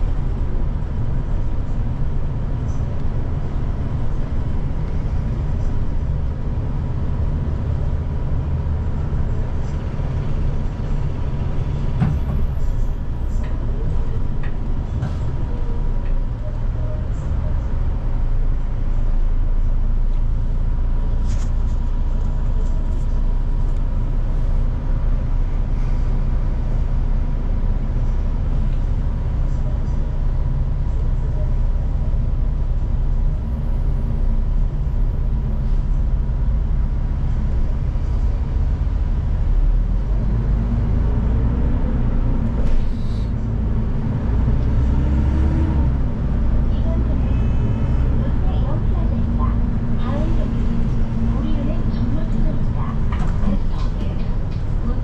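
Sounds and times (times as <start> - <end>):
bus engine and road rumble: 0.0 - 55.0.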